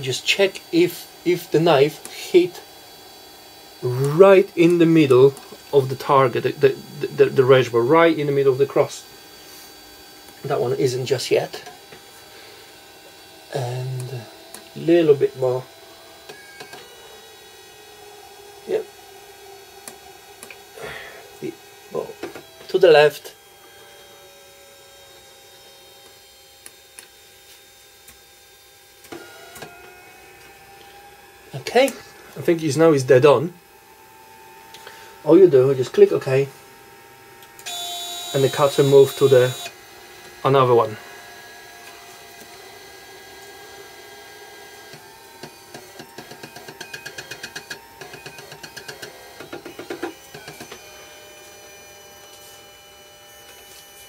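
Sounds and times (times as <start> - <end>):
vinyl cutter electric hum: 0.0 - 54.0
stepper motors buzzing in pulses: 36.8 - 40.5.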